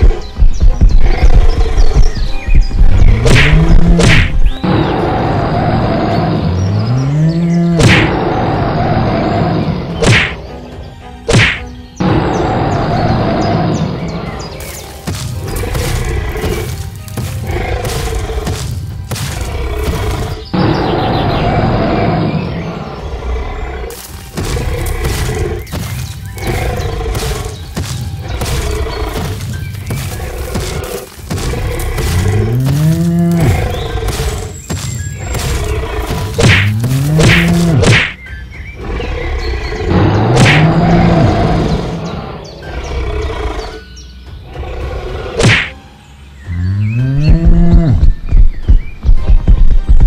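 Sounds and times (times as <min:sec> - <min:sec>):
background music: 0:00.0 - 0:50.0
dinosaur roar: 0:04.6 - 0:09.9, 0:15.4 - 0:34.6, 0:38.8 - 0:43.8.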